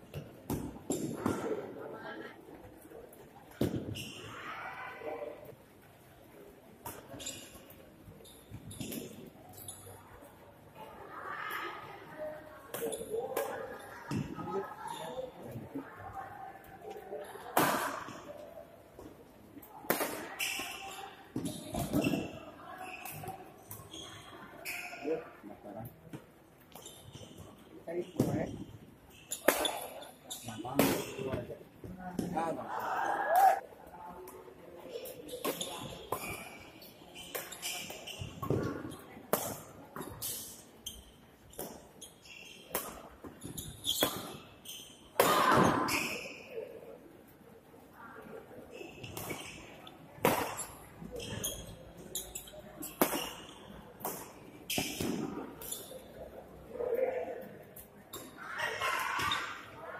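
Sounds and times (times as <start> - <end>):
court shoes squeaking: 0.0 - 4.6, 5.4 - 10.4, 11.5 - 33.6, 34.2 - 59.9
rackets hitting shuttlecock: 19.9 - 20.7, 29.3 - 30.1, 30.8 - 31.5, 50.2 - 51.7, 52.8 - 55.8
racket hitting shuttlecock: 50.2 - 50.7, 52.9 - 55.7.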